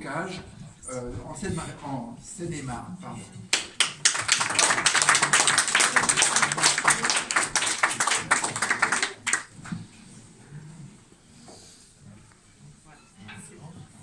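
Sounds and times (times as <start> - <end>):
crowd applauding: 3.5 - 9.7.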